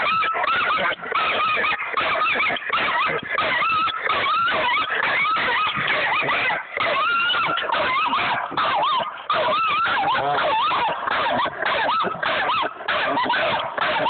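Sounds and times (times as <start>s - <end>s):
dog whining and yelping: 0.0s - 14.0s.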